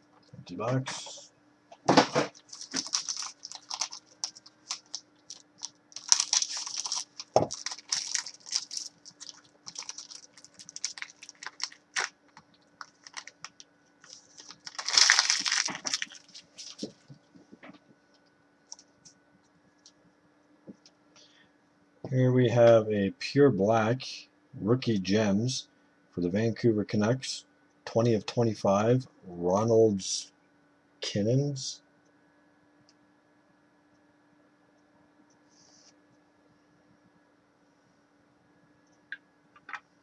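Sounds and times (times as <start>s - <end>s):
faint steady hum: 0.0s - 40.0s
foil wrapper crinkling: 2.3s - 17.1s.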